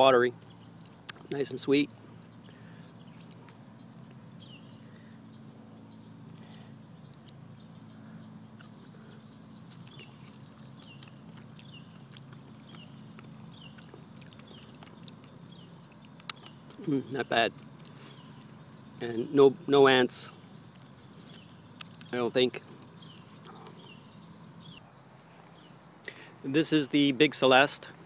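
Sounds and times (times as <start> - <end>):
insects chirping chorus: 0.0 - 28.0
low steady hum: 0.0 - 28.0.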